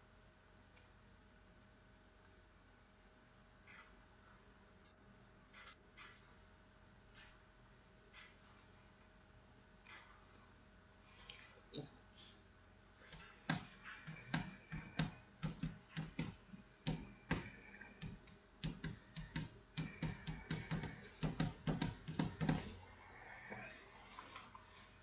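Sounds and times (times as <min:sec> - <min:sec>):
clicks and knocks on hard plastic: 0:13.2 - 0:22.8.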